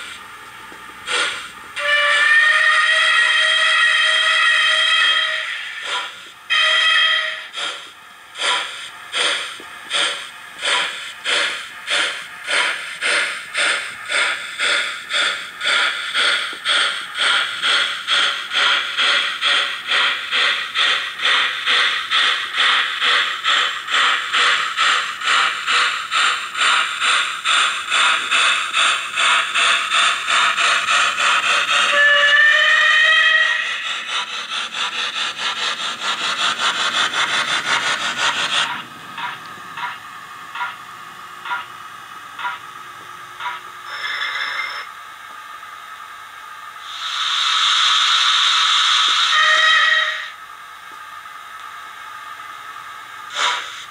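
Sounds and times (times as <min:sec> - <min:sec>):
steam locomotive exhaust beats: 0:00.0 - 0:53.9
short train whistle: 0:01.8 - 0:07.5, 0:31.8 - 0:33.8, 0:46.8 - 0:50.4.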